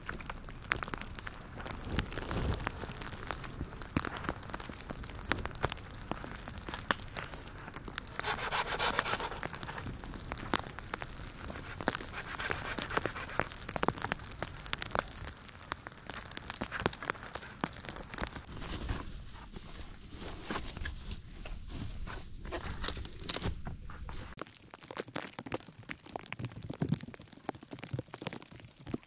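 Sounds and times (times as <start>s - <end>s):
sticks rustling and snapping: 0.0s - 19.6s, 22.5s - 23.6s.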